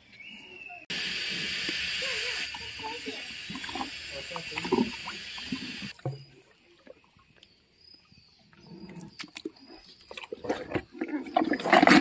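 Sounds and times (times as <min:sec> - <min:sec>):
hippopotamus chewing carrots: 0:08.6 - 0:12.0.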